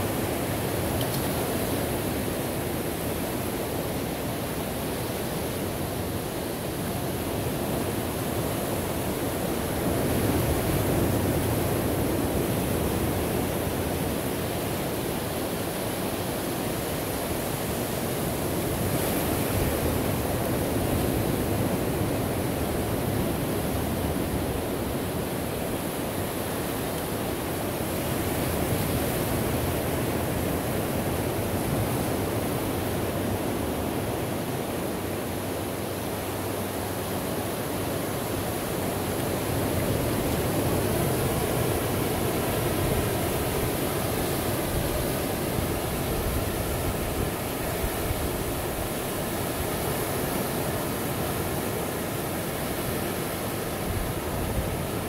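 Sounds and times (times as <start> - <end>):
ocean waves on shore: 0.0 - 55.0.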